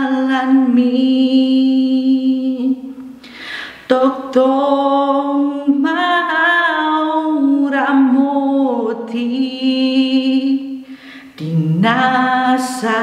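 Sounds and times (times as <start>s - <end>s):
woman singing unaccompanied: 0.0s - 3.0s, 3.8s - 13.0s.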